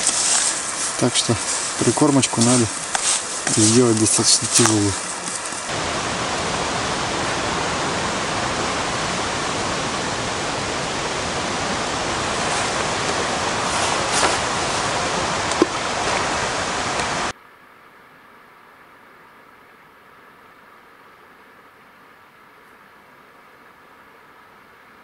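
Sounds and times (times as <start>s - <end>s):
faint rustles: 0.0s - 5.7s, 11.8s - 17.3s
steady rushing noise: 0.0s - 17.3s.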